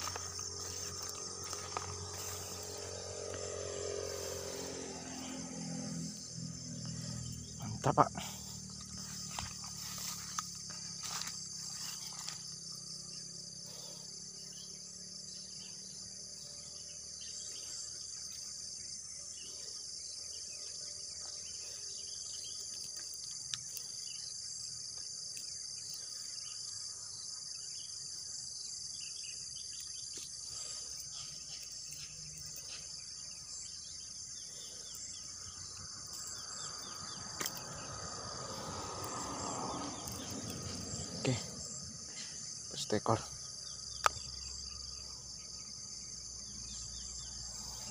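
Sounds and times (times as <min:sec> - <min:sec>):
night insects chorus: 0:00.0 - 0:47.9.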